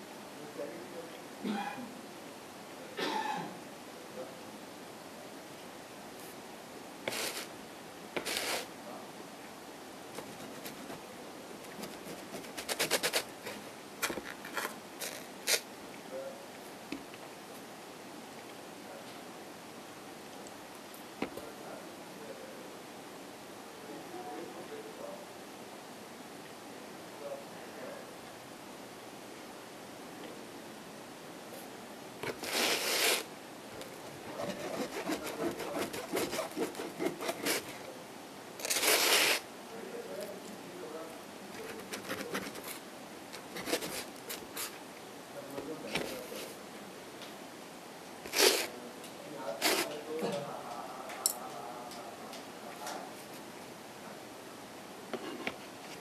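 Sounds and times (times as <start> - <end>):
short rasping hiss: 7.1 - 7.5, 8.2 - 8.7, 32.2 - 33.3, 38.6 - 39.5.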